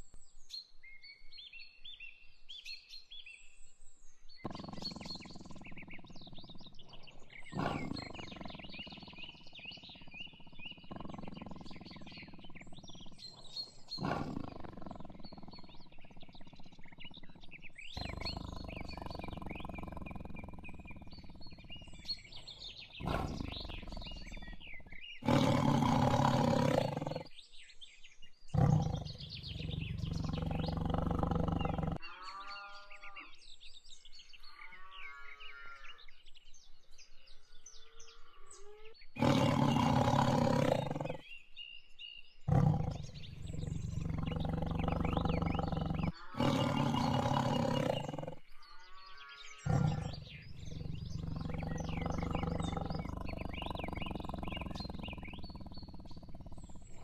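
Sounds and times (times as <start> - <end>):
birds chirping: 4.2 - 57.0
lion roaring and growling: 4.5 - 27.3, 28.6 - 32.0, 39.2 - 41.3, 42.5 - 48.4, 49.6 - 57.0.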